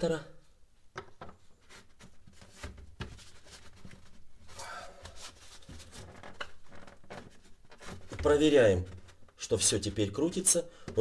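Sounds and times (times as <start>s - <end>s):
plastic clicks and knocks: 0.9s - 1.4s.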